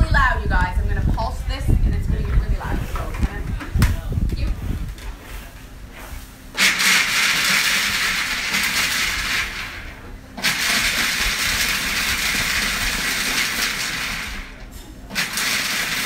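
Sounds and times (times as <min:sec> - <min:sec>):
food processor chopping nuts: 0:06.6 - 0:09.8, 0:10.4 - 0:16.0.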